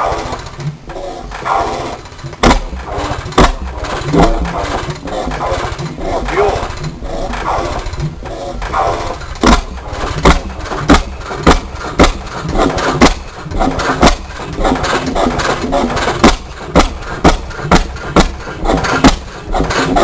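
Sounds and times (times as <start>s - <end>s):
stationary engine exhaust bangs: 0.0s - 20.0s.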